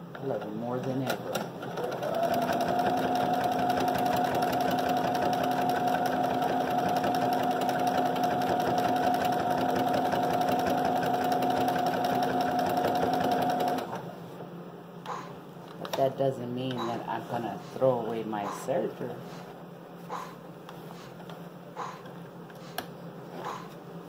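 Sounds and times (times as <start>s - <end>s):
sewing machine stitching: 0.8s - 14.0s.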